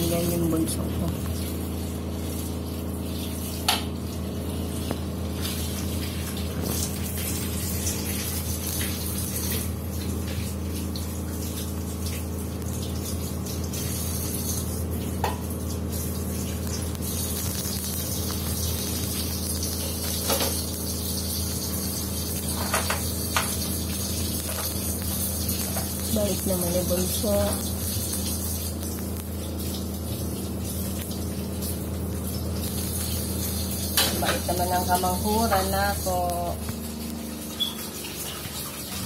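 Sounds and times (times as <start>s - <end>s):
tap water running into sink: 0.0s - 39.0s
dishes clinking: 22.5s - 23.6s.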